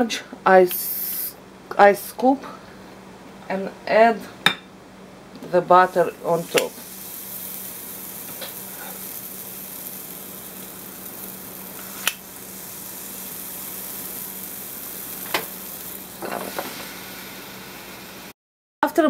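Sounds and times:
batter sizzling on grill: 5.7s - 18.4s.

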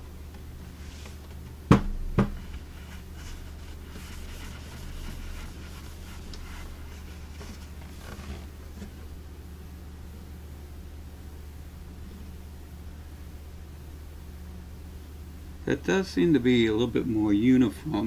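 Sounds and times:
steady low hum: 0.0s - 18.0s
cloth rubbing on wood: 0.7s - 1.3s, 2.2s - 9.0s
wooden cabinet knocking on desk: 1.7s - 2.5s.

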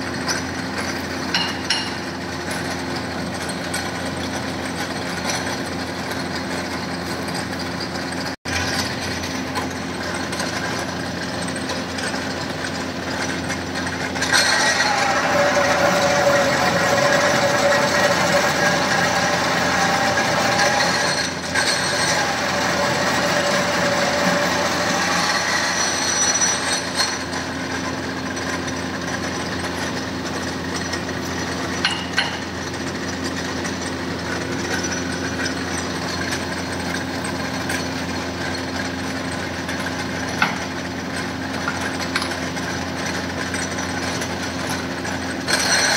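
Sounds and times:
drill press motor running: 0.0s - 45.9s
drill bit cutting metal whine: 13.1s - 29.2s, 43.0s - 45.9s.

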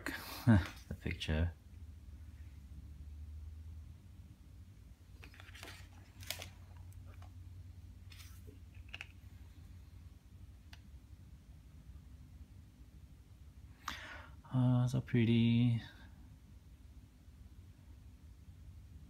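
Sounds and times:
low steady hum: 0.0s - 19.0s
paper rustling: 5.1s - 7.4s, 8.0s - 9.4s.

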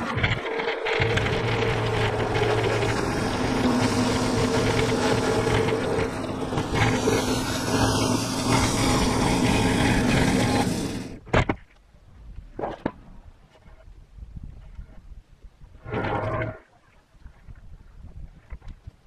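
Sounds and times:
band sawmill cutting log: 0.0s - 11.2s.

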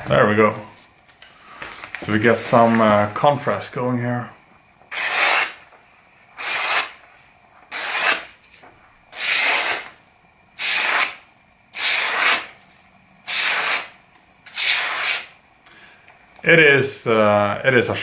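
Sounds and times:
knife slicing through paper: 4.9s - 5.6s, 6.4s - 7.0s, 7.7s - 8.3s, 9.2s - 9.9s, 11.8s - 12.5s, 13.3s - 13.9s, 14.5s - 15.3s.

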